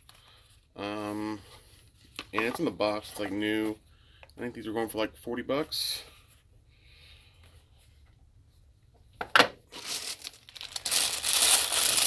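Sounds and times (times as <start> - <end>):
plastic bag of marbles rustling: 9.7 - 12.0.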